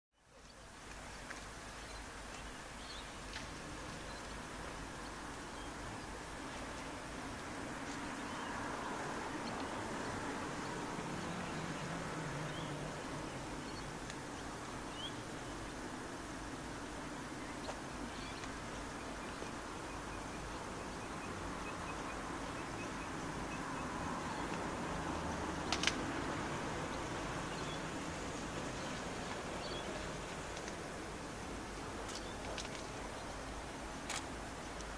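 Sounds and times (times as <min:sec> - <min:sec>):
outdoor background hiss: 0:00.2 - 0:34.9
distant diesel locomotives rumbling: 0:19.8 - 0:32.4.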